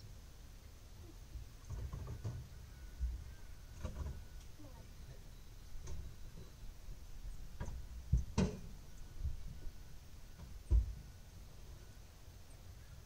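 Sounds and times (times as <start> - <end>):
heavy dull thump: 10.7 - 11.1.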